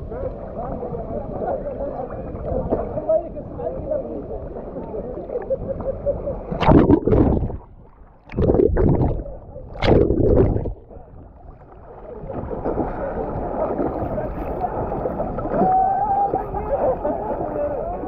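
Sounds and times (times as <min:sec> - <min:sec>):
muffled water noise: 0:00.0 - 0:18.0
water splashing and sloshing: 0:06.5 - 0:18.0
loud splashy bursts: 0:06.6 - 0:07.7, 0:08.3 - 0:10.8.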